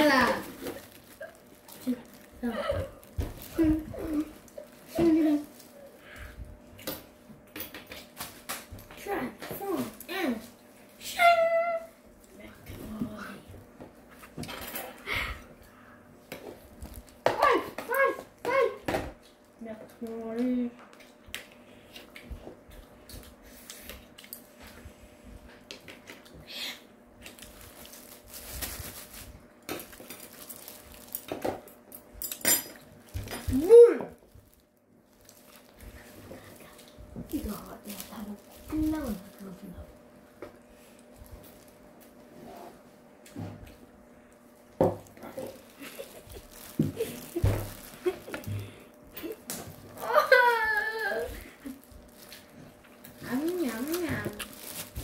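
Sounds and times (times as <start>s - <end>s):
rustling handling noise: 0.0s - 5.9s, 27.3s - 31.4s, 32.2s - 40.1s, 44.5s - 50.0s, 51.2s - 55.0s
plastic glove crinkling: 0.0s - 6.1s, 27.2s - 31.4s, 32.9s - 40.1s, 44.3s - 55.0s.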